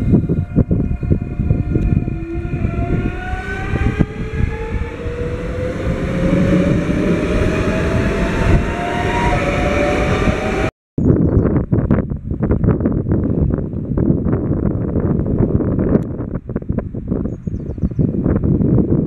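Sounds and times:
electric train traction whine: 0.0s - 10.7s
wheels rumbling on rail: 0.0s - 10.7s.

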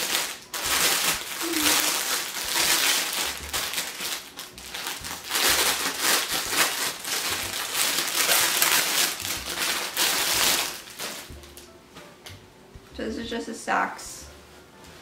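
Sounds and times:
plastic bag crinkling: 0.0s - 11.7s.

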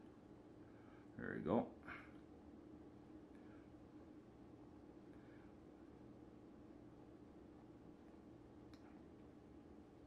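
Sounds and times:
faint low hum: 0.0s - 10.0s
faint click: 8.7s - 9.0s.

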